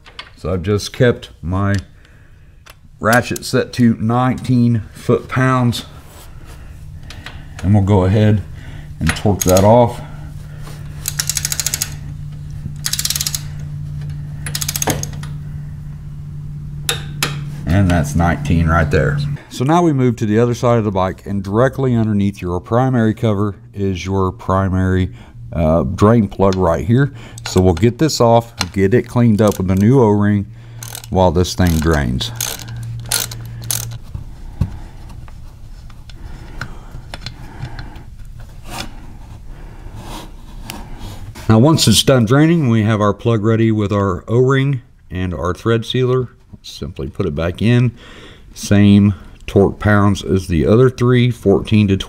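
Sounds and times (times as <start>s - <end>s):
torque wrench ratcheting clicks: 9.1s - 9.7s, 11.0s - 12.0s, 12.8s - 13.6s, 14.4s - 15.3s, 29.3s - 29.9s, 30.8s - 34.0s
torque wrench breaking click: 11.0s - 12.0s, 12.8s - 13.5s, 14.5s - 15.3s, 30.8s - 34.0s.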